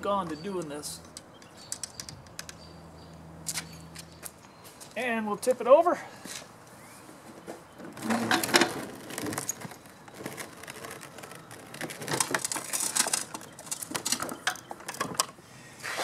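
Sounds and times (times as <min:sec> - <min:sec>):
lawn mower parts clattering: 0:00.0 - 0:02.6, 0:07.1 - 0:15.4.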